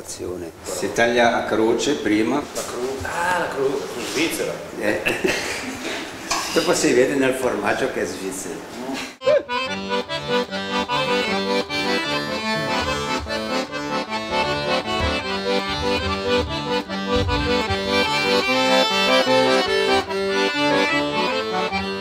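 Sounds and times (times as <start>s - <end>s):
accordion music: 9.2s - 22.0s.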